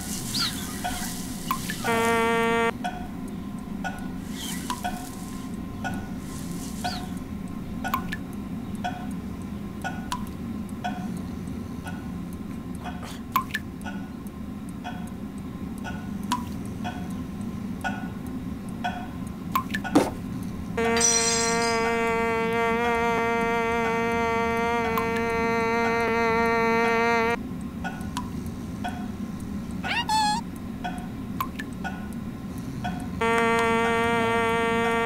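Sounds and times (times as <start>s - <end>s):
low steady hum: 0.0s - 31.4s
faint short tones: 1.8s - 2.7s, 29.8s - 30.4s.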